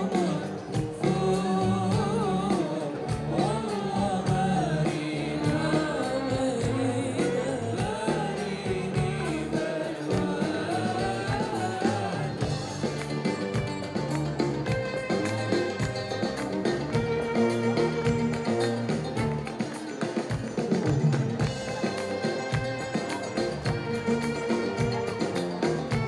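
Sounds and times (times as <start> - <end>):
woman singing through speakers: 0.0 - 12.6
instrumental accompaniment: 0.0 - 26.0.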